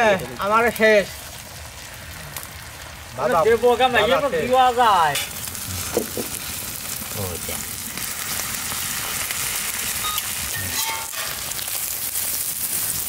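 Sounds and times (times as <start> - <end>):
eggs sizzling in hot oil: 0.0 - 13.0
steel spatulas scraping griddle: 10.0 - 11.6.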